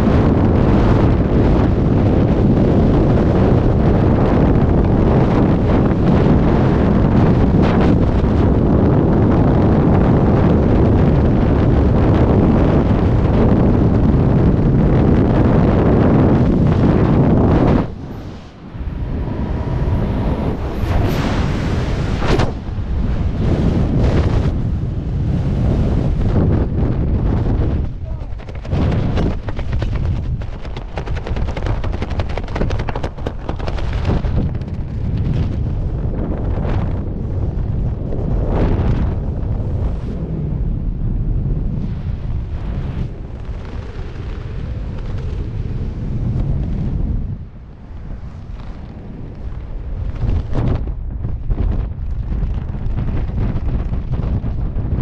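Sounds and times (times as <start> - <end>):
parachute fabric flapping: 0.0 - 40.7, 41.4 - 55.0
wind noise on microphone: 0.0 - 55.0.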